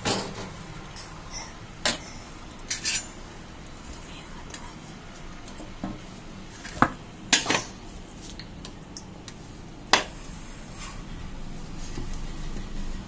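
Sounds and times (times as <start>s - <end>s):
metal lid and plates clanking: 0.0s - 3.2s.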